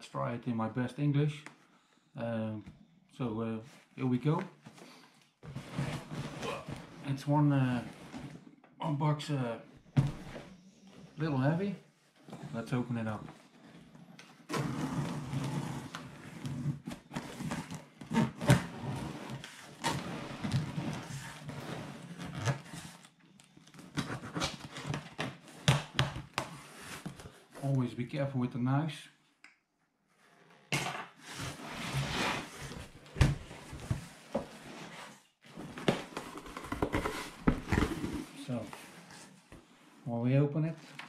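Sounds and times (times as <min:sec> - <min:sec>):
cardboard rustling and scraping: 0:04.7 - 0:08.4, 0:13.3 - 0:23.1, 0:31.2 - 0:39.9.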